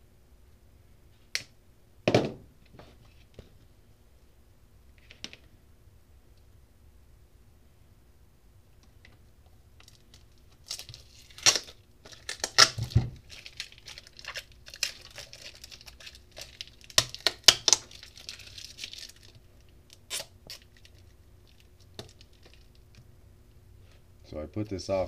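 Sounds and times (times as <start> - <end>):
plastic wrapping crinkling and tearing: 9.8 - 22.9.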